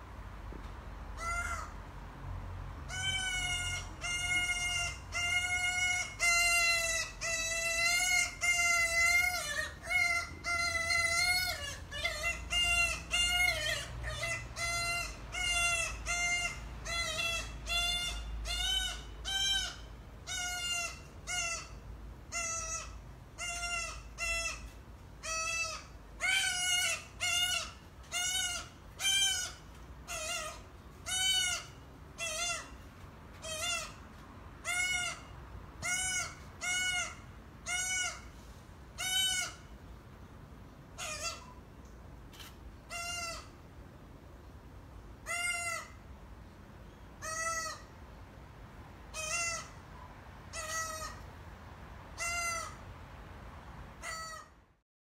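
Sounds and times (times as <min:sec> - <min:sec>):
bird calling: 0:02.9 - 0:38.4.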